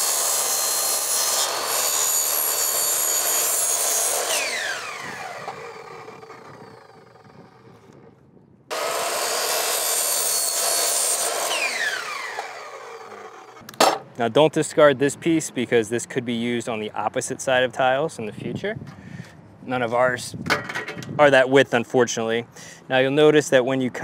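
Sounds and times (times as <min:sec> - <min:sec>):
miter saw cutting plastic: 0:00.0 - 0:13.7.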